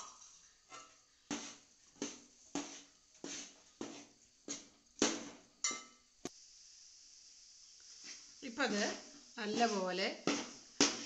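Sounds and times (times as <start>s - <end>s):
metal spoon scraping a metal pan: 8.8s - 11.0s.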